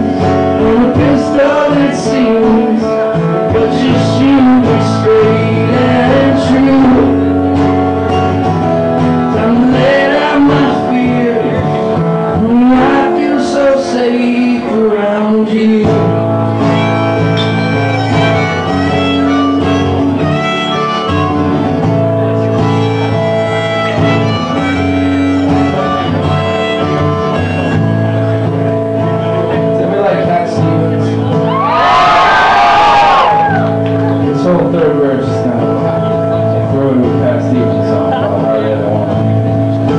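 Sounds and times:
man singing: 0:00.0 - 0:07.5, 0:09.2 - 0:16.9, 0:34.2 - 0:39.2
acoustic guitar strumming: 0:00.0 - 0:39.9.

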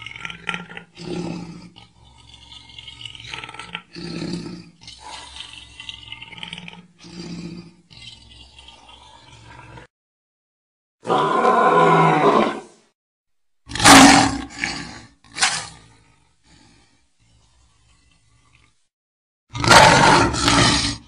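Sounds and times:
lion growling: 0:00.0 - 0:09.9, 0:19.5 - 0:21.0
breathy noise: 0:14.7 - 0:18.9.

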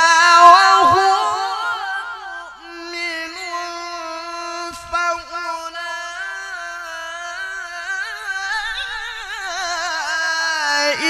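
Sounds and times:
man reciting melodically: 0:00.0 - 0:11.0.

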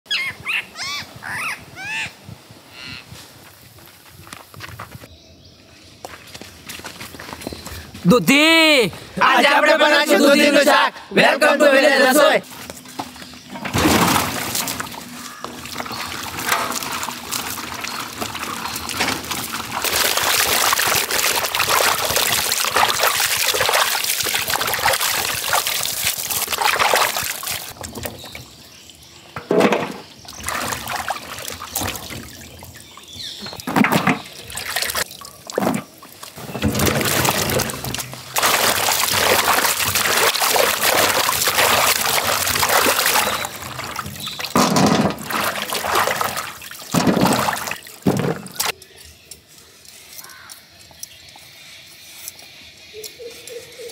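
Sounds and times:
water splashing and sloshing: 0:12.4 - 0:48.8
sharp splashes: 0:13.8 - 0:27.8, 0:30.4 - 0:32.7, 0:34.2 - 0:48.7.

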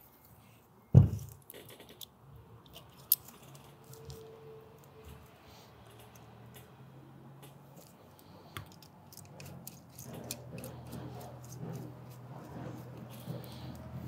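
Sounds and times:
small metal parts clicking: 0:01.4 - 0:04.9, 0:08.6 - 0:11.6.

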